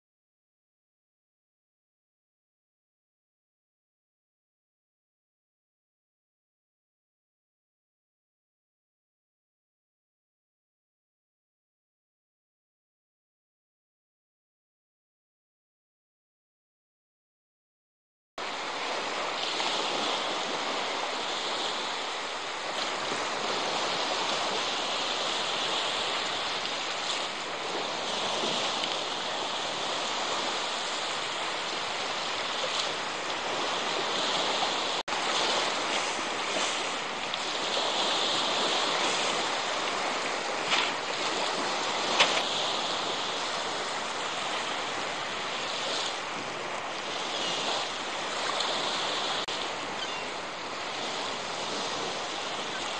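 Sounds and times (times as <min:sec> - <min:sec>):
surf washing onto shore: 0:18.4 - 0:52.9
wind: 0:18.4 - 0:52.9.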